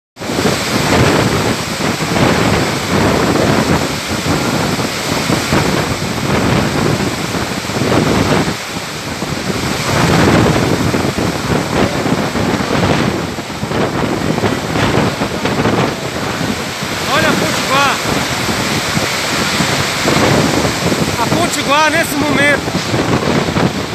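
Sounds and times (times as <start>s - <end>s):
heavy rain: 0.2s - 23.9s
wind gusting over microphone: 0.2s - 23.9s.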